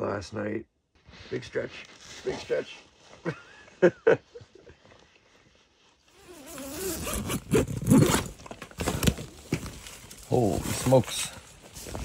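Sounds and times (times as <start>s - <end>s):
tent door zipper opening: 6.1s - 9.4s.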